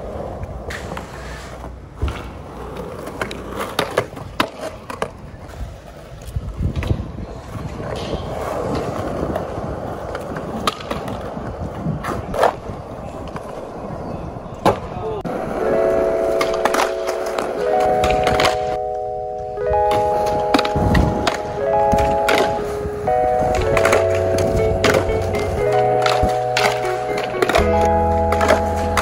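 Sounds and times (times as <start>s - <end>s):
skateboard wheels rolling: 0.0s - 29.0s
skateboard clacking down: 0.2s - 13.9s, 14.6s - 29.0s.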